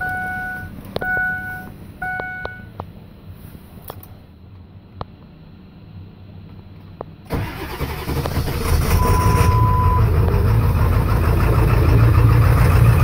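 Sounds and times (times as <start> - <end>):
beep: 0.0 - 2.7, 9.0 - 10.1
diesel engine idling: 0.0 - 13.0.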